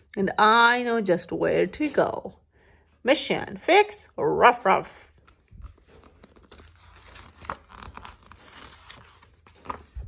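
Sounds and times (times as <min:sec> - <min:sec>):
paper page rustling: 0:05.1 - 0:10.0.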